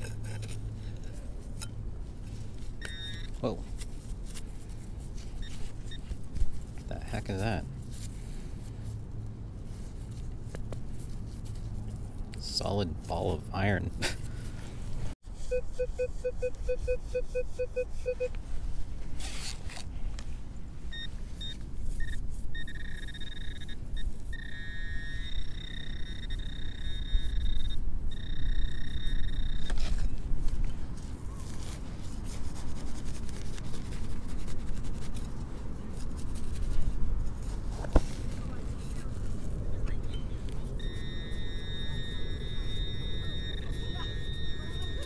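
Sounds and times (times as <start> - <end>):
metal detector beeping low: 2.8 - 3.5, 5.4 - 6.2, 15.4 - 18.4, 20.9 - 30.0, 40.0 - 45.0
pinpointer steady high tone: 2.8 - 3.7, 20.9 - 29.8, 39.9 - 45.0.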